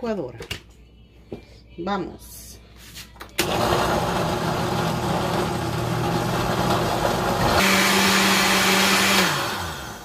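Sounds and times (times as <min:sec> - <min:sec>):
blender running: 0:03.4 - 0:10.0.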